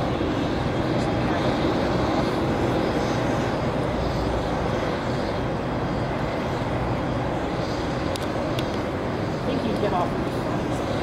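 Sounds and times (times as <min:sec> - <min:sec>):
jet aircraft rumble and hiss: 0:00.0 - 0:11.0.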